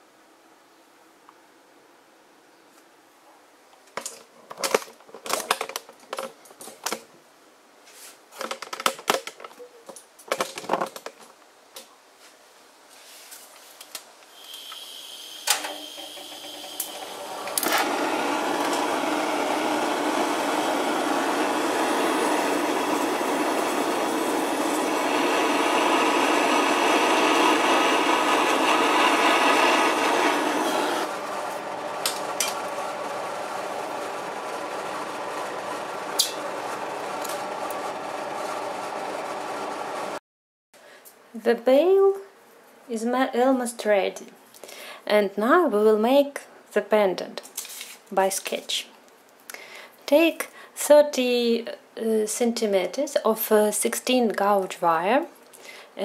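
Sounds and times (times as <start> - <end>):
torch flame hissing: 14.4 - 40.2.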